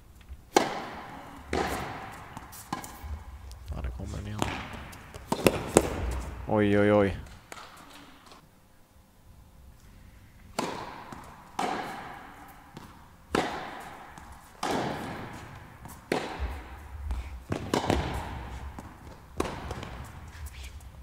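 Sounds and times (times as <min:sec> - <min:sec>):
tennis ball pops: 0:04.4 - 0:06.2, 0:10.6 - 0:12.1.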